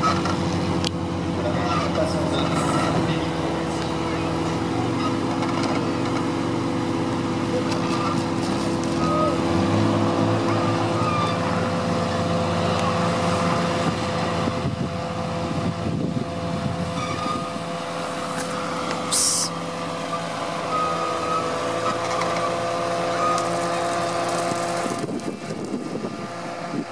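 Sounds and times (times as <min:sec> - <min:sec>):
truck engine running under load: 0:00.0 - 0:26.9
sharp hiss: 0:19.1 - 0:19.6.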